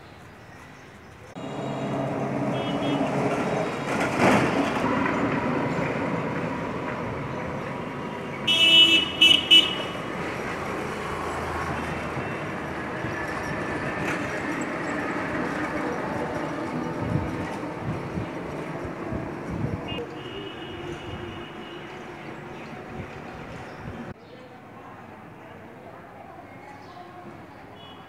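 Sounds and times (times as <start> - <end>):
street traffic: 0.0 - 28.0
vehicle horn honking: 1.4 - 3.4, 8.4 - 10.1, 19.9 - 21.9.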